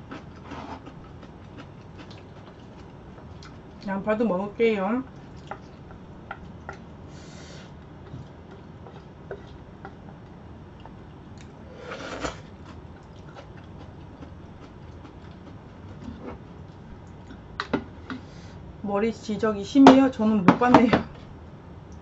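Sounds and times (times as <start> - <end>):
steady low hum: 0.0 - 22.0
slurping noodles: 11.7 - 12.5.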